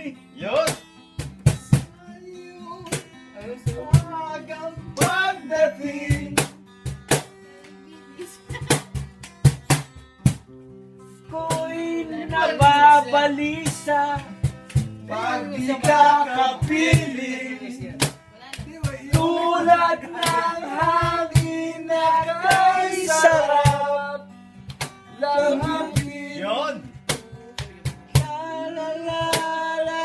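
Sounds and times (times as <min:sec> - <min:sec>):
strummed acoustic guitar: 0:00.0 - 0:30.0
cajon slaps: 0:00.6 - 0:02.0, 0:02.8 - 0:04.2, 0:04.9 - 0:05.4, 0:06.1 - 0:07.8, 0:08.5 - 0:10.6, 0:11.3 - 0:24.0, 0:24.6 - 0:26.2, 0:26.8 - 0:28.4, 0:29.0 - 0:30.0
man singing: 0:01.8 - 0:06.5, 0:11.3 - 0:14.4, 0:15.0 - 0:18.1, 0:18.7 - 0:24.2, 0:25.1 - 0:30.0.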